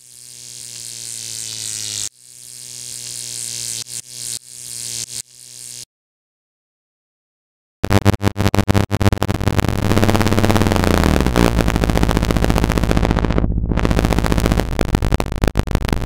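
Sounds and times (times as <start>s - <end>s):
electrical sparks crackling: 7.8s - 16.0s
low electrical hum: 9.6s - 16.0s.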